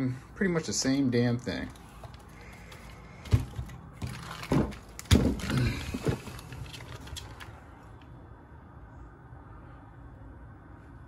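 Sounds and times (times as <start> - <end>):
plastic toy truck knocks and rattles: 3.2 - 7.6.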